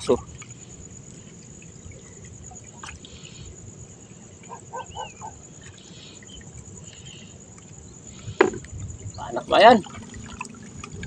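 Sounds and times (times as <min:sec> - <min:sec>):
night insects chirring: 0:00.0 - 0:11.0
short low animal calls: 0:04.4 - 0:06.3.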